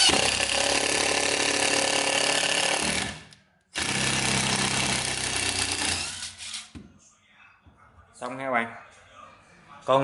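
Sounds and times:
impact driver driving screw into wood: 0:00.0 - 0:06.7.

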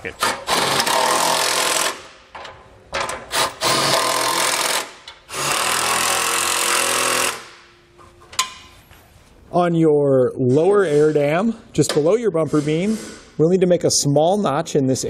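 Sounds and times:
impact driver hammering bolts: 0:00.2 - 0:07.6.

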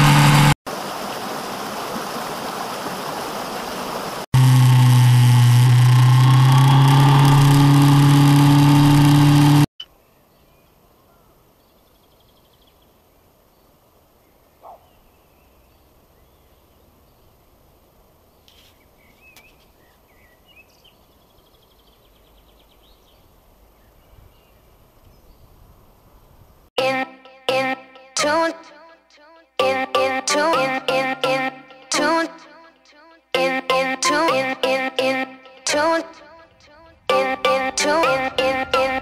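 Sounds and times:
motorcycle engine running: 0:00.0 - 0:00.6, 0:04.4 - 0:09.7.

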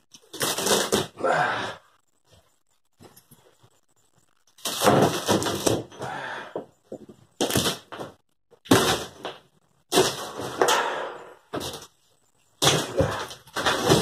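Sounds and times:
board cracking and creaking: 0:00.1 - 0:01.4, 0:04.4 - 0:12.0, 0:12.6 - 0:14.0.

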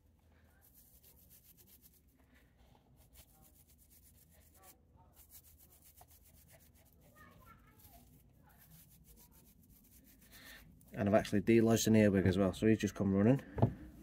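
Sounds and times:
toothbrush bristles rubbing foliage: 0:00.5 - 0:11.0.

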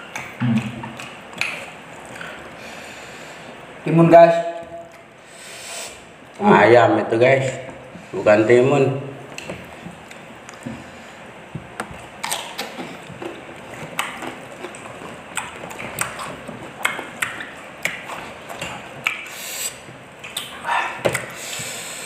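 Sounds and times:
chewing and lip-smacking: 0:00.0 - 0:02.4, 0:11.6 - 0:21.8
sharp eating clicks: 0:00.0 - 0:02.4, 0:11.9 - 0:21.7
breathy hiss: 0:02.2 - 0:03.7, 0:05.2 - 0:06.1, 0:19.3 - 0:19.9, 0:20.6 - 0:22.0.

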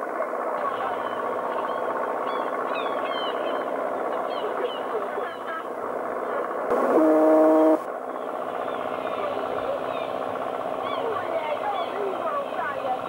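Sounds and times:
ship's horn blast: 0:06.7 - 0:07.9.

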